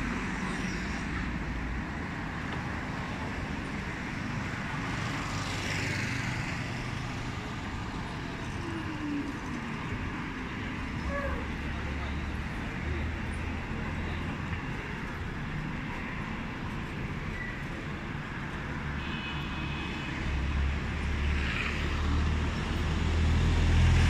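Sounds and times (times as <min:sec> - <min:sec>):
city street traffic: 0:00.0 - 0:24.0
passing vehicle hiss: 0:18.6 - 0:24.0.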